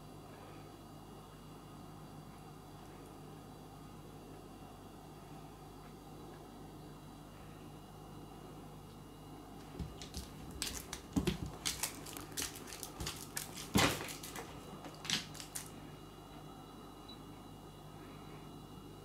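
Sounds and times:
cat scratching toy on wooden floor: 0:09.6 - 0:15.7.

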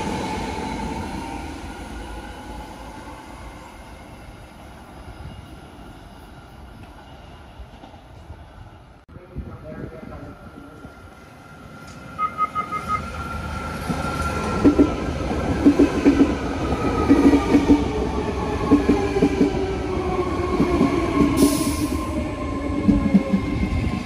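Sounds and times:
train whine: 0:00.0 - 0:24.0
beeps: 0:12.2 - 0:13.1.

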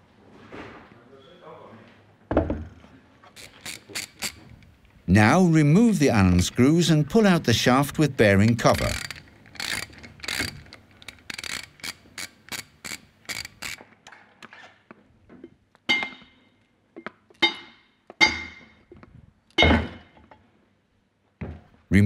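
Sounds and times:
ratchet wrench clicking: 0:03.4 - 0:04.5, 0:08.6 - 0:13.8.

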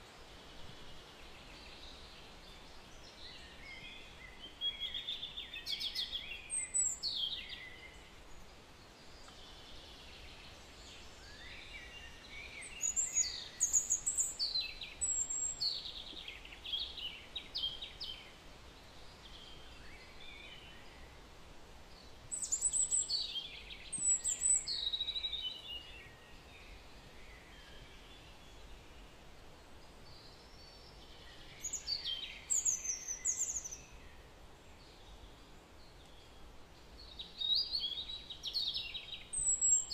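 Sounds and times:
faint background hiss: 0:00.0 - 0:39.9
songbird chirping: 0:00.0 - 0:39.9.

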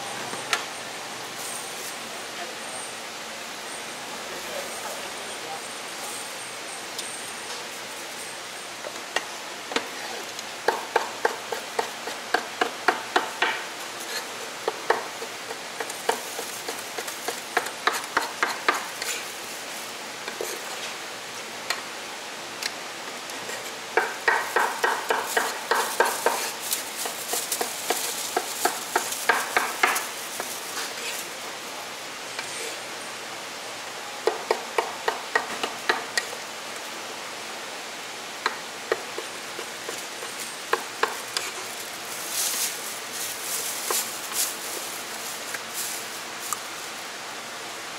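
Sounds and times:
cleaver chopping on wooden board: 0:24.0 - 0:30.0.

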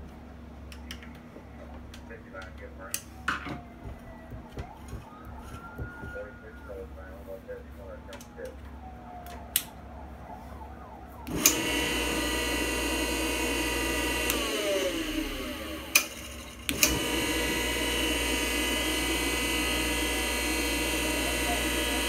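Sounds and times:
switch click: 0:09.2 - 0:09.7
bench grinder motor whine: 0:10.8 - 0:22.0.

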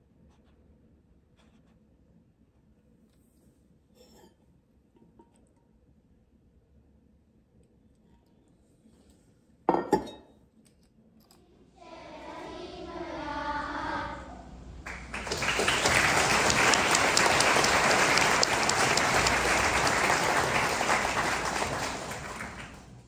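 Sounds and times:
choir singing: 0:11.4 - 0:22.8
audience applause: 0:11.8 - 0:23.0.

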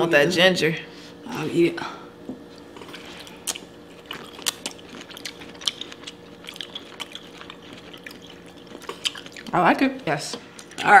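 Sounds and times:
chewing mouth sounds: 0:02.6 - 0:09.6.

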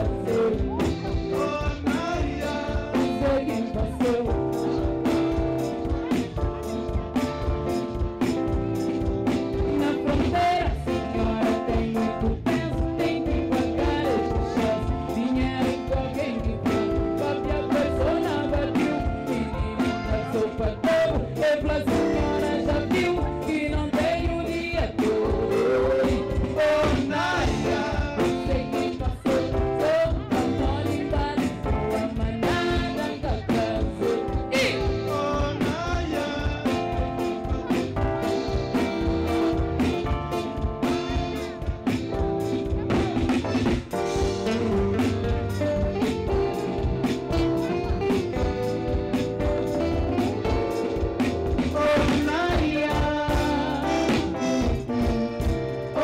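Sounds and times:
woman singing: 0:00.0 - 0:07.0, 0:09.6 - 0:37.9, 0:49.9 - 0:55.4
live band playing: 0:00.0 - 0:56.0.

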